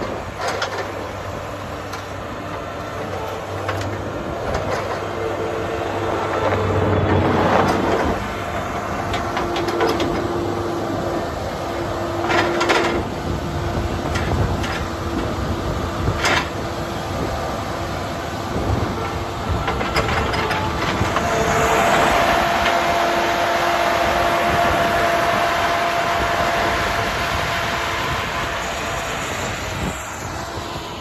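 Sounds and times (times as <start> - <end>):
diesel engine droning: 0.0 - 31.0
higher steady tone: 21.0 - 31.0.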